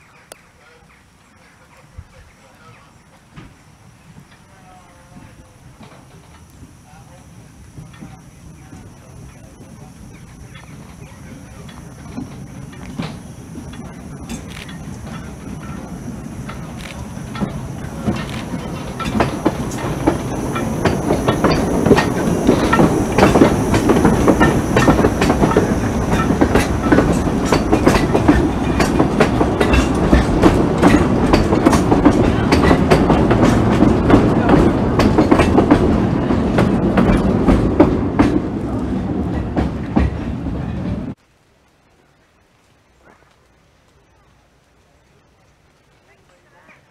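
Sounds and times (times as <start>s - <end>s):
train rolling past: 0.0s - 41.2s
wheels clattering over rail joints: 3.1s - 41.2s.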